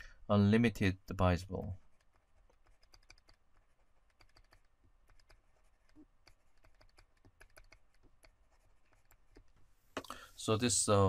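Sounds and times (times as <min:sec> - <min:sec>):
stylus tapping on tablet screen: 0:04.1 - 0:10.1.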